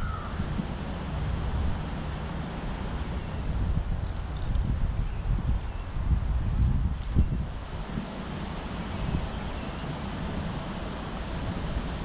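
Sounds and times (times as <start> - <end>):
wind buffeting microphone: 3.0 - 12.0.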